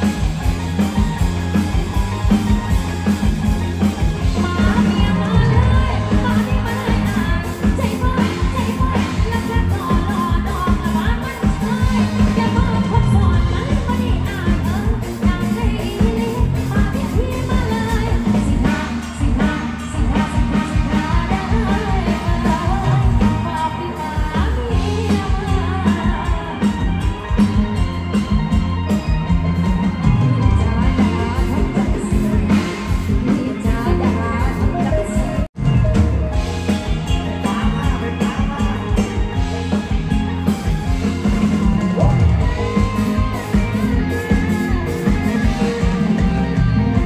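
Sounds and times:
drum kit beat: 0.0s - 47.0s
live band playing: 0.0s - 47.0s.

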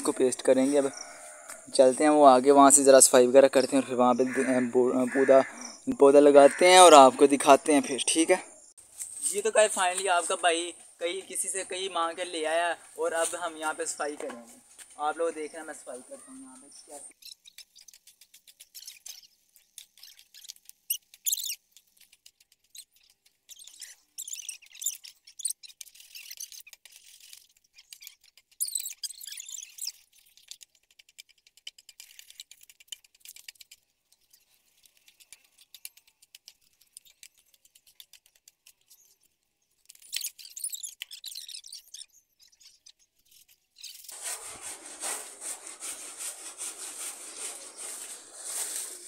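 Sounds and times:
steady rustling noise: 8.8s - 15.8s, 29.4s - 49.0s
spade scraping weeds and soil: 43.9s - 49.0s.

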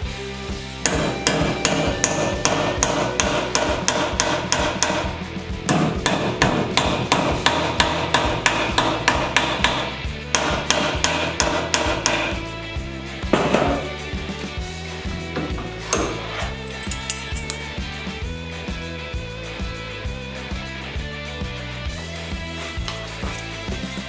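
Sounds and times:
hammer striking metal: 0.8s - 12.5s, 13.3s - 13.9s, 15.3s - 17.6s.

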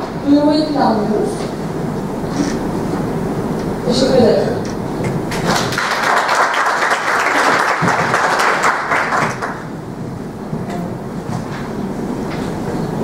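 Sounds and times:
audience applauding: 5.3s - 9.7s.

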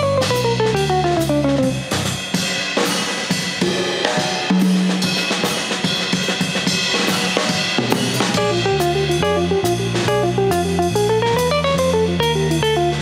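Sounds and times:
drum kit: 0.0s - 13.0s
jazz trio playing: 0.0s - 13.0s
held low note: 8.2s - 11.3s.

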